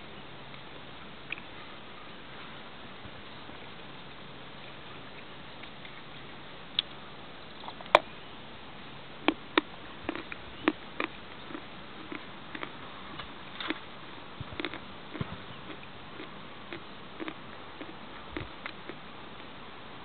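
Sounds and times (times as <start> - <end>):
chewing chalk crunches: 9.2 - 13.9, 14.5 - 19.0.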